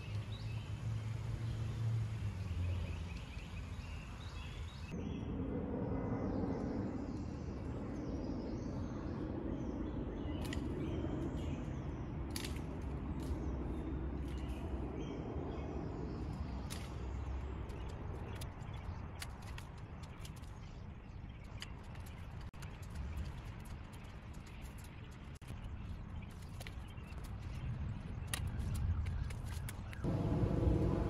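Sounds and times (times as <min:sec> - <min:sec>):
low outdoor rumble: 0:00.0 - 0:20.7, 0:29.9 - 0:31.0.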